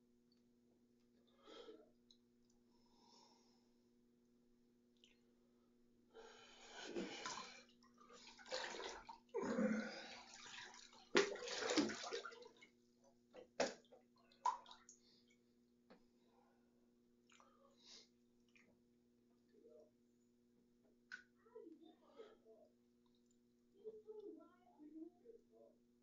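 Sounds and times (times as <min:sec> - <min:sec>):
bathwater sloshing and splashing: 0:06.8 - 0:15.4.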